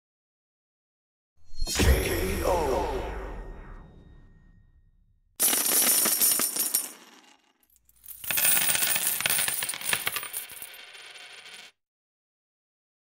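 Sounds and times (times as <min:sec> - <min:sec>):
metallic jingling and clinking: 0:05.4 - 0:10.8.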